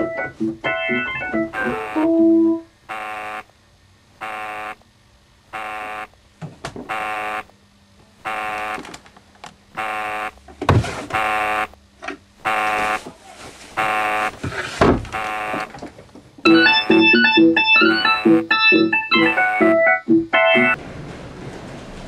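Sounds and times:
electronic organ chord: 0:00.0 - 0:03.4, 0:16.5 - 0:20.8
pulsing alarm buzzer: 0:01.5 - 0:02.1, 0:02.8 - 0:03.5, 0:04.2 - 0:04.8, 0:05.5 - 0:06.2, 0:06.8 - 0:07.5, 0:08.2 - 0:08.8, 0:09.7 - 0:10.4, 0:11.1 - 0:11.8, 0:12.4 - 0:13.0, 0:13.8 - 0:14.4, 0:15.1 - 0:15.7, 0:16.5 - 0:19.6.

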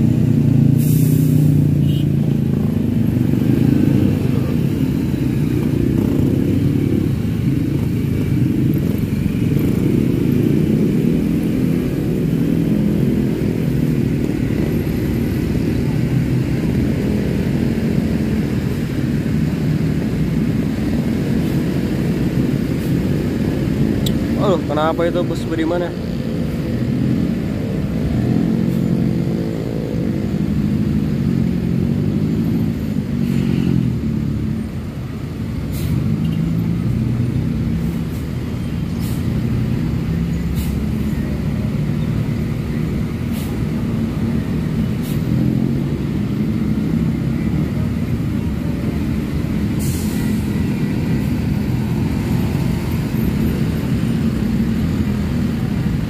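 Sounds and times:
coach diesel engine under load: 0:00.0 - 0:56.0
motorcycles passing: 0:00.0 - 0:56.0
short hisses: 0:00.8 - 0:01.5.

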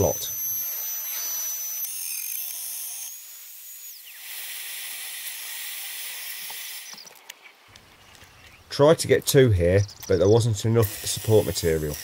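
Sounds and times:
router spindle whining: 0:00.0 - 0:07.2, 0:10.8 - 0:12.0.

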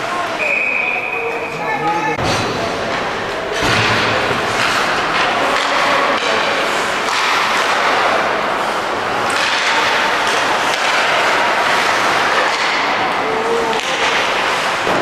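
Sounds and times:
crowd noise in arena: 0:00.0 - 0:15.0.

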